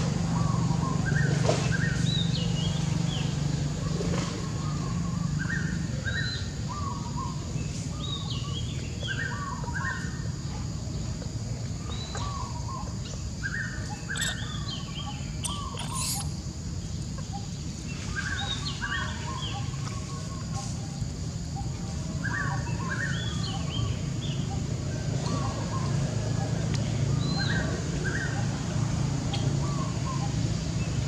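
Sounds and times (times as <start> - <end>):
songbird repeating a phrase: 14.2 - 16.3.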